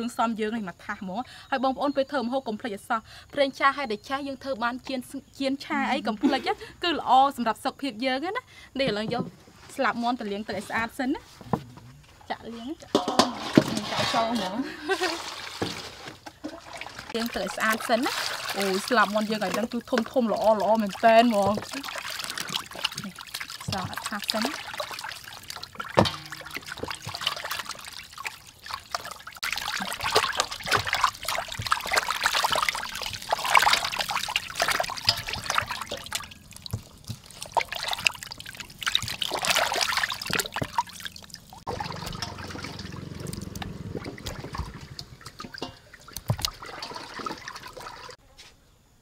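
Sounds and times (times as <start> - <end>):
water splashing in metal basin: 12.8 - 48.2.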